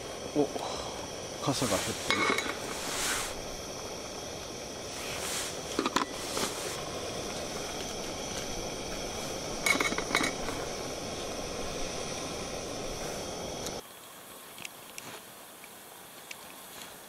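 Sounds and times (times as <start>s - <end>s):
camping stove burner hissing: 0.0s - 17.0s
cookware clinking: 2.1s - 2.6s, 9.6s - 10.4s.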